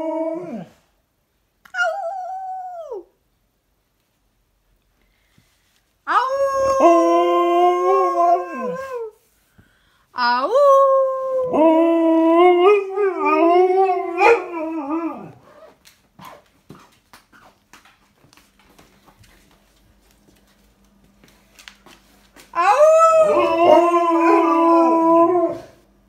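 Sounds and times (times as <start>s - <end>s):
dog howling: 6.1s - 9.1s, 10.6s - 15.4s, 22.6s - 25.8s.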